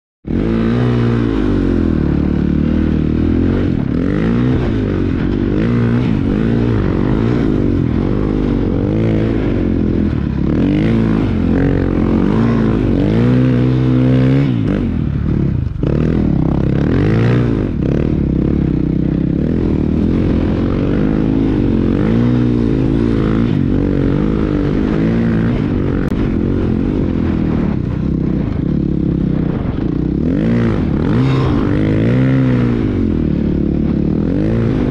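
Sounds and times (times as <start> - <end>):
snow bike engine revving: 0.3 - 34.9.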